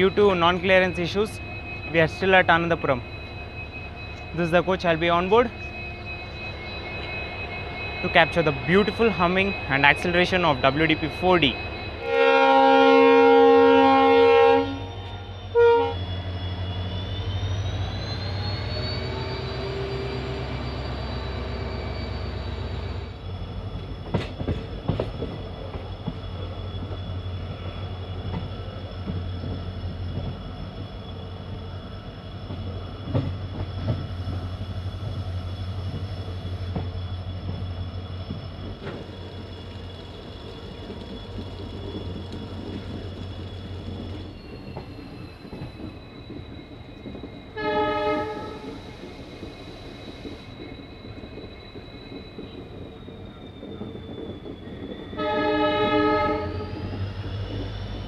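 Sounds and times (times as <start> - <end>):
locomotive engine humming: 0.0 - 58.0
train clanks: 0.0 - 58.0
turbo whine: 0.0 - 58.0
train horn blast: 12.0 - 16.0, 47.6 - 48.8, 55.2 - 56.8.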